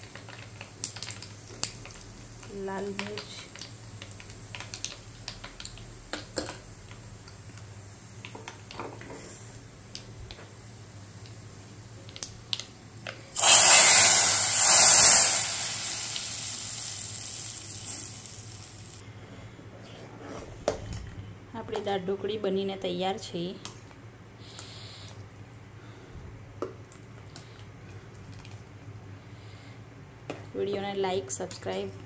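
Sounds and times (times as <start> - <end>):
hot oil sizzling loudly: 13.3 - 19.0.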